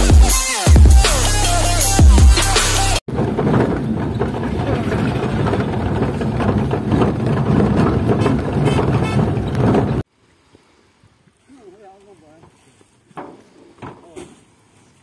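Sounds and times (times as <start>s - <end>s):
electronic intro music: 0.0s - 3.0s
vehicle engine and road noise: 0.0s - 15.0s
knocks and rattles: 3.1s - 10.1s, 12.4s - 14.4s.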